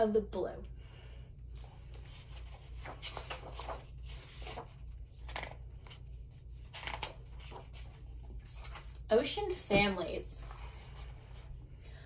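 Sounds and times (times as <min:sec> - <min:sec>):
book pages turning: 0:01.4 - 0:09.1, 0:10.4 - 0:11.5.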